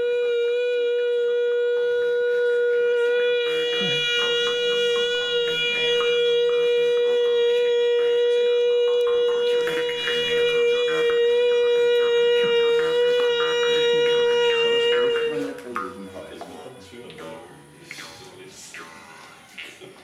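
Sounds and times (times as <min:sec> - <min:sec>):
wind instrument long note: 0:00.0 - 0:17.8.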